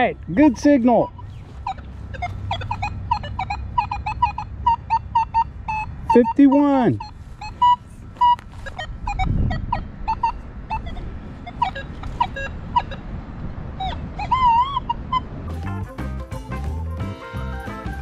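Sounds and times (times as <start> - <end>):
metal detector beeps: 0.0 - 13.1, 13.8 - 15.2
wavering detector tone: 0.6 - 15.6.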